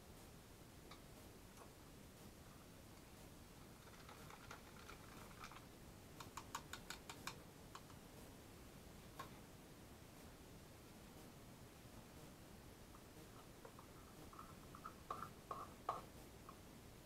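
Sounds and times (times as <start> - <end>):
faint soft rustling: 7.9 - 16.6.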